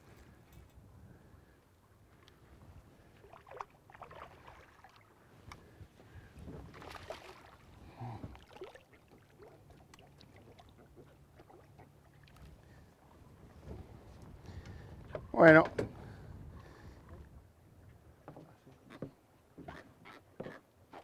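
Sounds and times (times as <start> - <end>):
water splashing and sloshing: 2.1 - 15.3.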